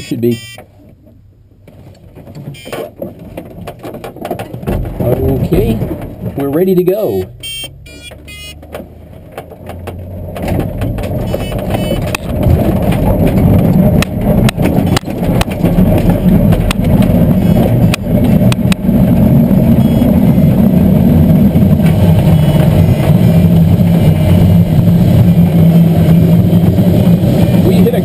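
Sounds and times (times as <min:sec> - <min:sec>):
engine and wind rumble: 0:00.0 - 0:28.0
wheel knocking over ground: 0:01.6 - 0:07.4, 0:08.2 - 0:24.0.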